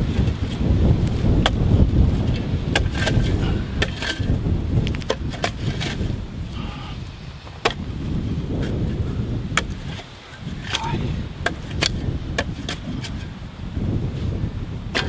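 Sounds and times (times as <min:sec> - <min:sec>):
shovel striking hard clay: 0:02.2 - 0:04.3, 0:04.9 - 0:06.1, 0:07.6 - 0:07.8, 0:09.5 - 0:13.2.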